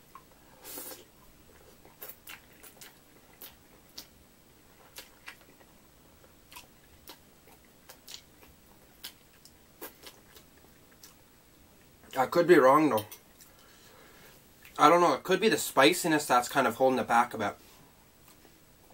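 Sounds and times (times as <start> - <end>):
wet chewing and mouth smacks: 0.1 - 11.2.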